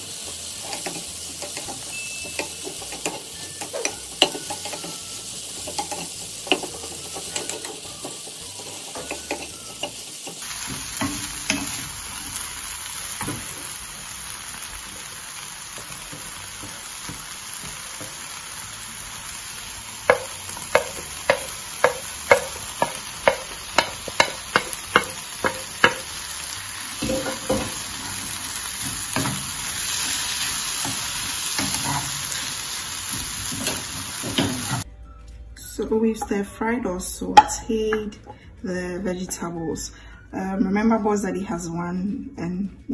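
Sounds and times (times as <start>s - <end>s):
vegetables sizzling in oil: 0.0s - 34.9s
spatula knocking on pan: 20.1s - 26.2s, 27.0s - 27.9s.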